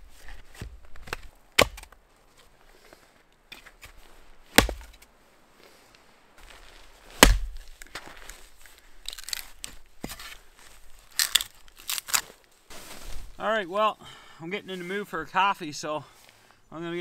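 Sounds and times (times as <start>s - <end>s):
hatchet chopping wood: 0.6s - 2.0s, 4.5s - 5.0s, 7.2s - 7.6s.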